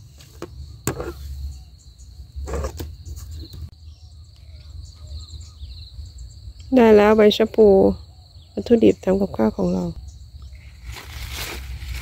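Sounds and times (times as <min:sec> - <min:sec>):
leafy plants rustling: 0:10.5 - 0:12.0.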